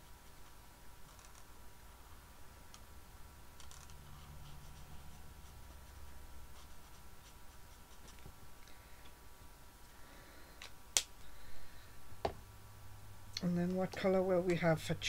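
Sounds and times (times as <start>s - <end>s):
marker scratching on card: 3.6s - 8.3s.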